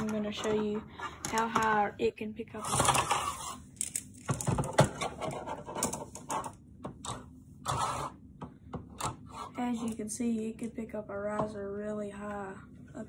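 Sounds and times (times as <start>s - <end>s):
plastic parts clicking and knocking: 3.8s - 7.2s.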